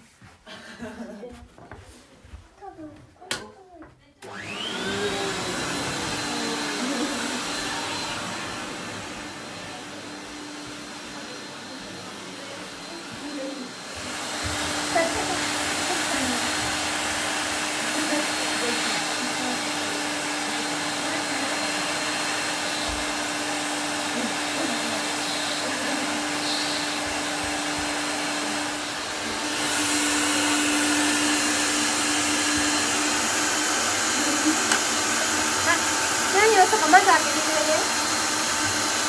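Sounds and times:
vacuum cleaner humming: 4.2 - 39.0.

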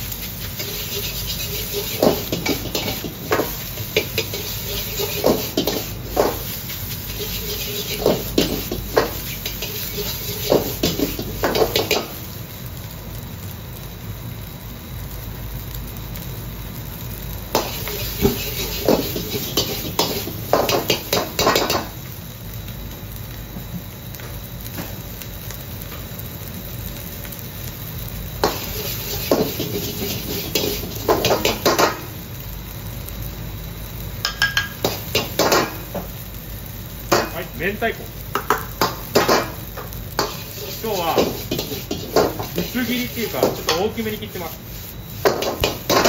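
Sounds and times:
gas burner rushing: 0.0 - 12.5, 17.2 - 22.2, 27.8 - 46.0
metal ladle scraping wok: 0.1 - 12.1, 17.6 - 21.9, 28.4 - 32.0, 40.2 - 46.0.

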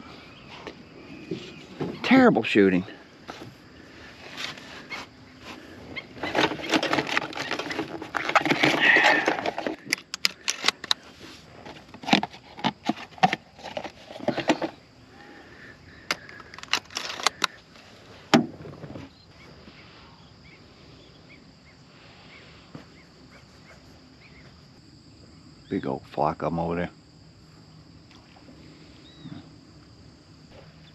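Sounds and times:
insects chirring: 0.0 - 30.9
shells clicking into shotgun: 8.4 - 11.0, 16.1 - 17.6.

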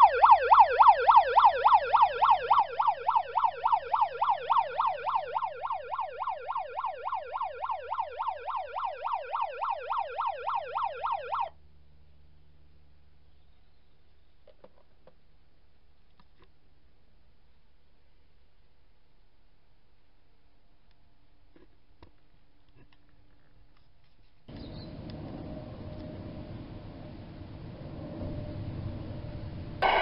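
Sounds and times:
electronic yelp siren: 0.0 - 11.6, 28.0 - 30.0.

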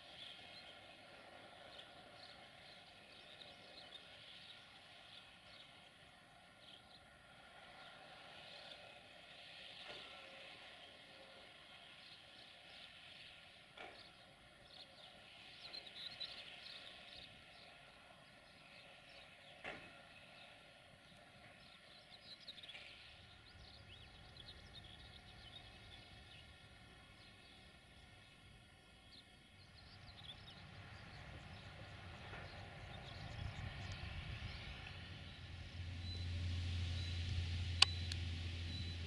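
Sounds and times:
small birds chirping: 0.0 - 39.0
low rumble: 29.8 - 39.0
short clicks: 37.8 - 38.3.

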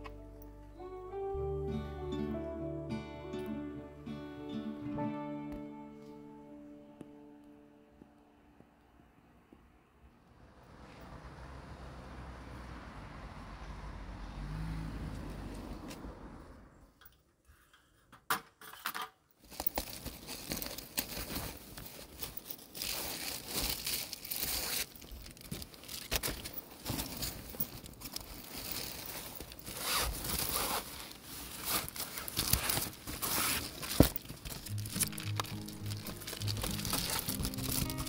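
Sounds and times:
fabric rustling: 19.4 - 38.0.

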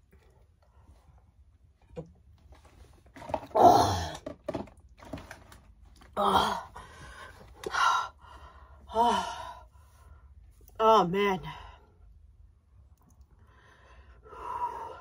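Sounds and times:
woman gasping and groaning: 3.5 - 4.3, 6.2 - 8.2, 8.9 - 9.7.

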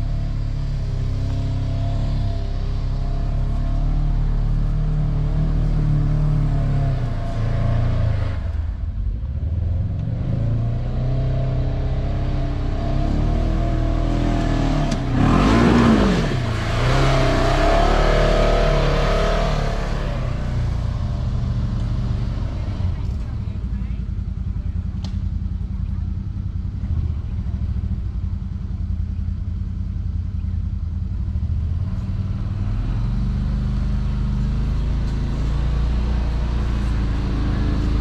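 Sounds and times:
engine revving under load: 0.0 - 23.6, 31.7 - 38.0.

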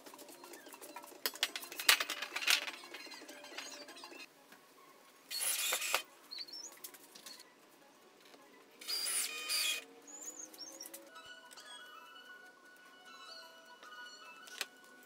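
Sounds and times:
power drill whirring: 5.3 - 6.0, 8.8 - 9.8.

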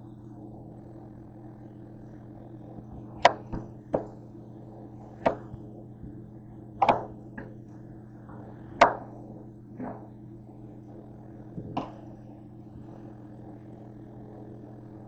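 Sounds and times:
knife chopping melon on board: 6.8 - 7.1.

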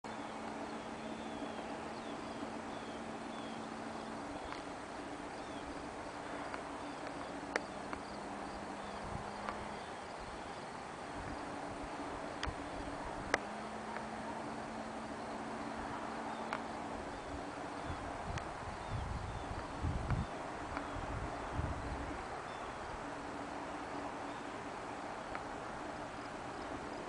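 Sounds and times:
small bird chirping: 0.1 - 4.7
low steady hum: 0.1 - 27.0
steady background hiss: 0.1 - 27.0.

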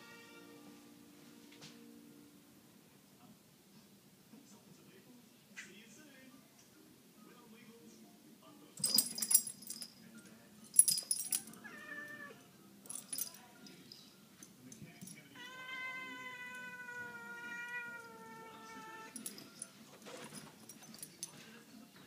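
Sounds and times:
collar tags jingling: 8.8 - 11.7, 12.8 - 15.3, 18.2 - 21.5
cat yowling: 11.6 - 12.4, 15.3 - 19.2.

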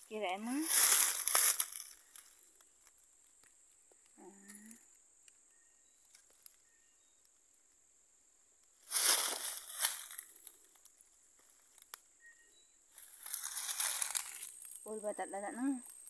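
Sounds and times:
wire scraping against bark: 12.9 - 14.9.

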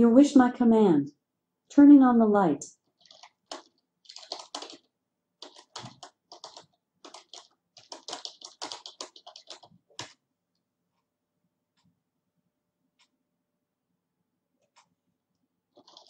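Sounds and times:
typing on computer keyboard: 2.8 - 10.2, 15.7 - 16.0.

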